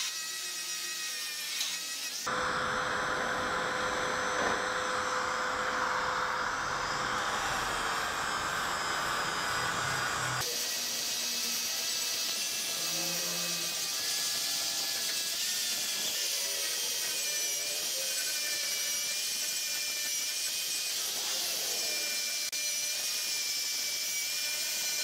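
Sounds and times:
angle grinder grinding metal: 0:00.0 - 0:25.0.

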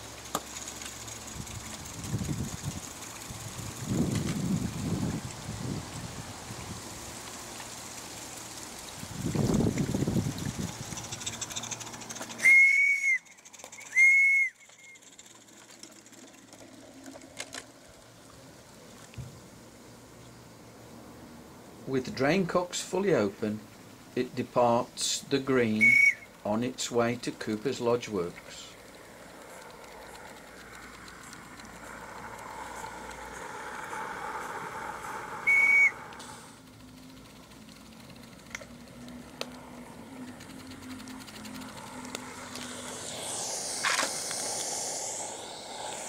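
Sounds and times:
model steam locomotive hissing: 0:00.0 - 0:18.1, 0:21.0 - 0:46.0
faint brief whistle toot: 0:12.4 - 0:15.0, 0:25.8 - 0:26.3, 0:35.4 - 0:36.4
high steam whistle blasts: 0:12.4 - 0:15.0, 0:25.8 - 0:26.4, 0:32.7 - 0:36.6.

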